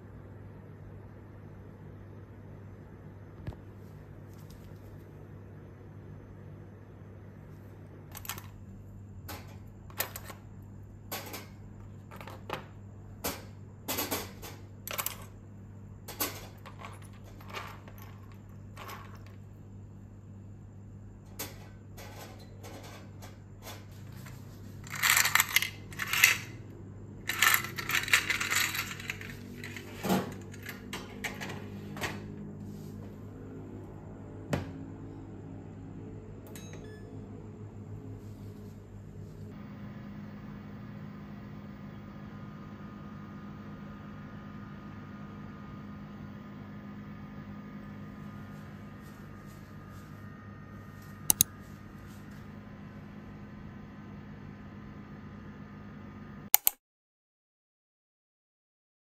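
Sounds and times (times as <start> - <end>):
steady low hum: 0.0 - 56.5
metal tools clinking onto wire rack: 24.9 - 26.6, 27.3 - 31.0.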